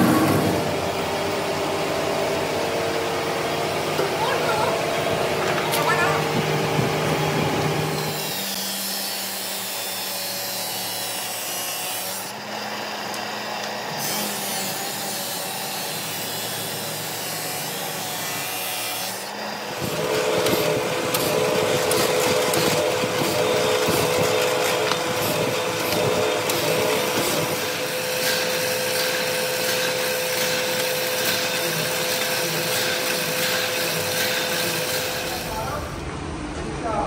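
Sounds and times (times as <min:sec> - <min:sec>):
drill press motor running: 0:00.0 - 0:09.8, 0:12.2 - 0:36.0
drill bit rapid clicking: 0:19.8 - 0:35.5.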